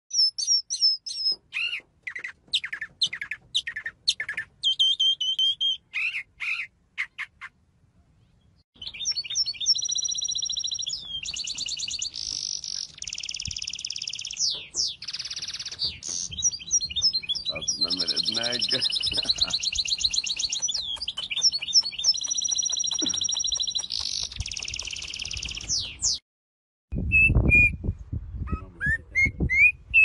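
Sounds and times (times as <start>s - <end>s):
mockingbird singing: 0.1s - 7.6s, 8.4s - 26.2s
bird trills and buzzy rattles: 9.1s - 26.2s.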